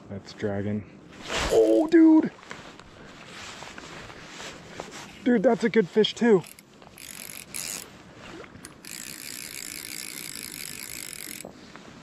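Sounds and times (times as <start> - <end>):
fly reel drag ratcheting: 6.4 - 7.9, 8.6 - 11.5.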